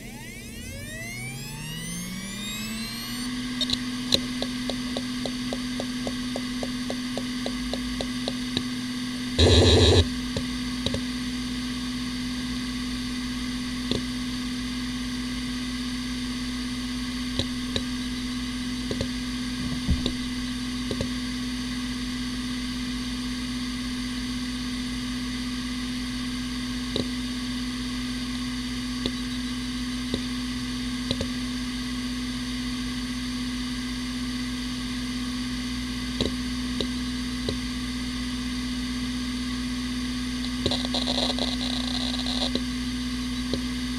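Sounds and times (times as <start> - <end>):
hard drive spinning hum: 0.0 - 43.9
hard drive seek clicks: 3.6 - 8.8, 9.4 - 11.1, 17.3 - 21.2, 26.9 - 27.2, 29.0 - 30.3, 31.0 - 31.4, 40.4 - 43.8.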